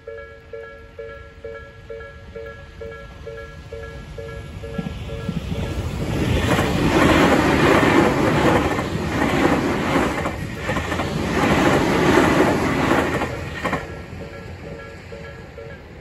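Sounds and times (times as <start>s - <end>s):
crossing warning bell ringing: 0.0s - 6.2s, 12.6s - 16.0s
electric train rumbling past: 0.0s - 16.0s
wheels clacking over rail joints: 4.2s - 15.9s.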